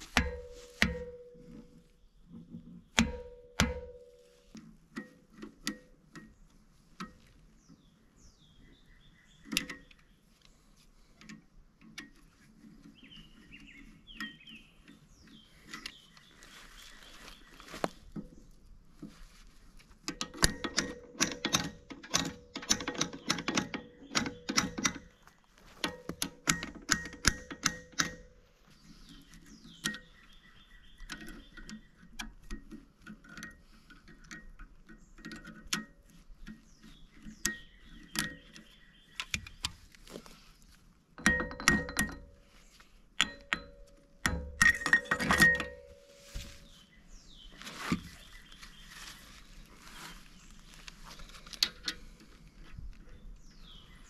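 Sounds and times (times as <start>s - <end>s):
sharp metal knocks and clanks: 0.0s - 6.4s, 20.1s - 25.2s, 25.8s - 28.4s, 41.2s - 42.5s, 43.2s - 46.7s
quiet metal clattering: 0.0s - 40.4s, 41.1s - 42.6s, 43.2s - 54.0s.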